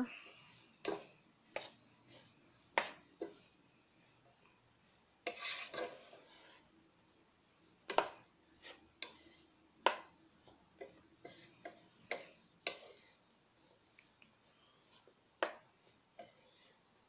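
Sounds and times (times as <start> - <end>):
wooden spatula scraping a pan: 0.0 - 17.0
spatula knocking on pan: 7.9 - 8.2, 9.8 - 10.2.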